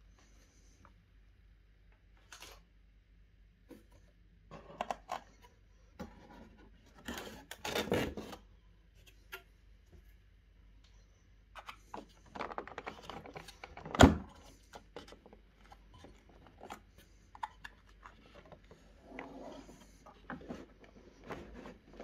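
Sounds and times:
cardboard scraping and rustling: 0:18.1 - 0:22.0.

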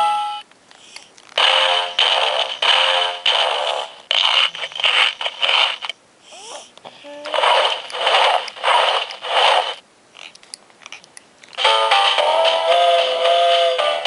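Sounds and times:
rhythmic swishing from toy speaker: 0:01.4 - 0:05.9, 0:07.3 - 0:09.8, 0:11.6 - 0:14.0.

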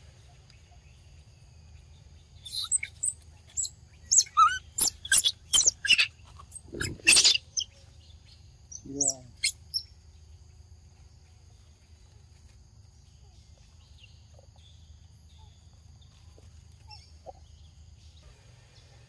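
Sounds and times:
sharp high animal chirps: 0:02.4 - 0:07.8, 0:08.8 - 0:09.9.

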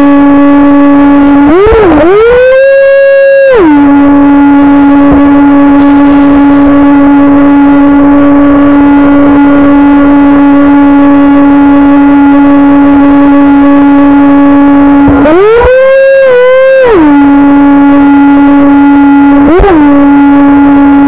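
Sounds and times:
electric motor whine: 0:00.0 - 0:21.0.

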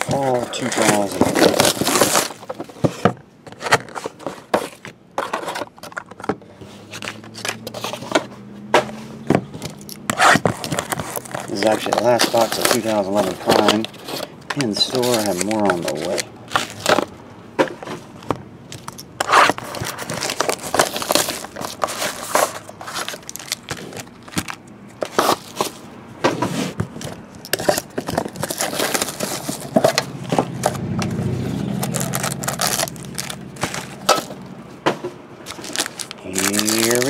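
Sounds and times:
plastic wrap crinkling: 0:00.0 - 0:02.5, 0:10.3 - 0:17.1, 0:19.4 - 0:25.8, 0:27.6 - 0:30.8, 0:31.7 - 0:34.3, 0:35.4 - 0:37.0
cardboard knocks and scrapes: 0:19.2 - 0:30.8.

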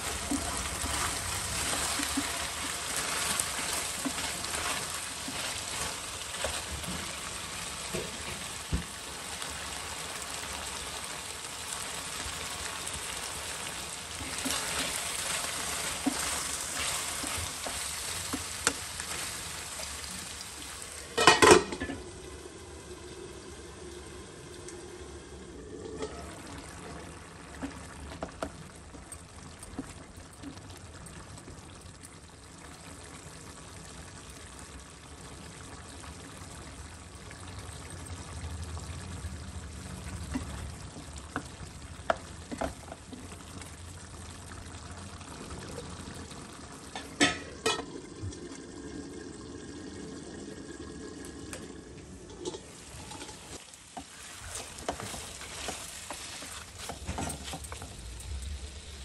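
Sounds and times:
chicken sizzling in a wok: 0:00.0 - 0:30.2, 0:32.2 - 0:50.2, 0:51.8 - 0:59.0
steel lid clanking on pan: 0:21.1 - 0:22.0, 0:47.0 - 0:47.9
spatula scraping and knocking pan: 0:52.4 - 0:58.0.

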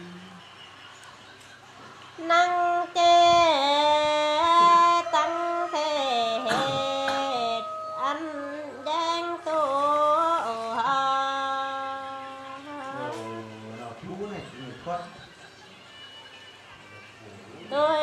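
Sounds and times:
person singing unaccompanied folk song: 0:02.2 - 0:13.8, 0:17.0 - 0:18.0.

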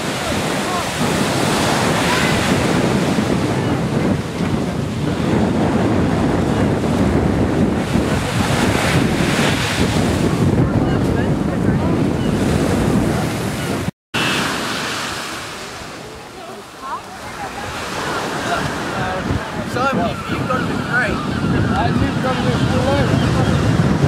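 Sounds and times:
wind buffeting microphone: 0:00.0 - 0:16.3, 0:16.9 - 0:24.0
surf washing onto sand: 0:00.0 - 0:20.8.

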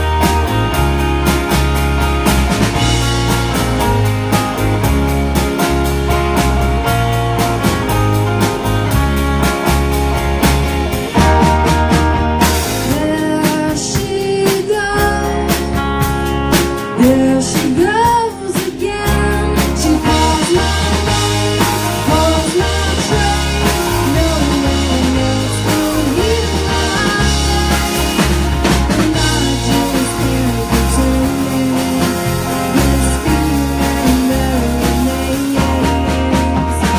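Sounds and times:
bass line: 0:00.0 - 0:36.9
drum kit: 0:00.0 - 0:36.9
person singing: 0:12.9 - 0:15.8, 0:17.0 - 0:36.9.

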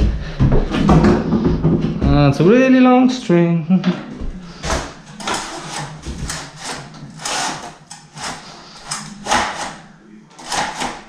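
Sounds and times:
blind cord scraping rustles: 0:04.8 - 0:11.0.

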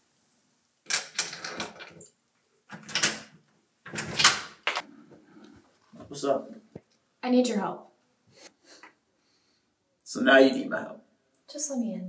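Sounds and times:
door chain lock rattling: 0:00.9 - 0:02.0, 0:02.7 - 0:04.8.

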